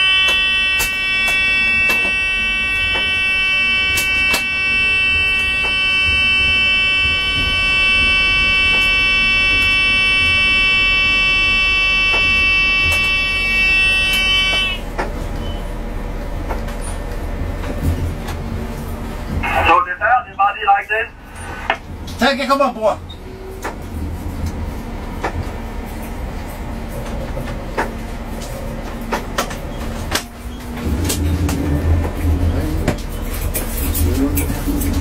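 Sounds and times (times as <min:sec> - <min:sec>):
loud electronic alarm tone: 0:00.0 - 0:14.9
low rumble of moving train: 0:00.0 - 0:35.0.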